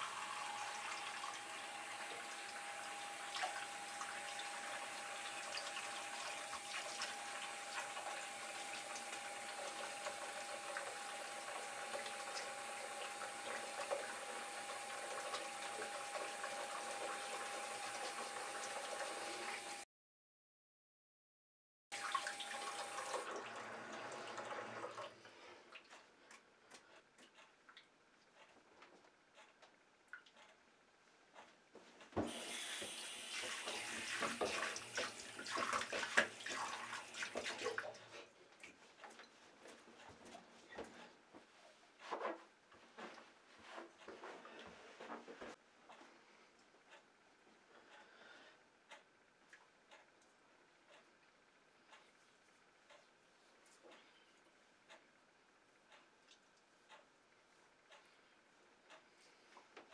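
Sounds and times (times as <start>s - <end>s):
tap running: 0.0s - 19.8s, 32.1s - 37.8s
tap water splashing: 32.2s - 37.9s.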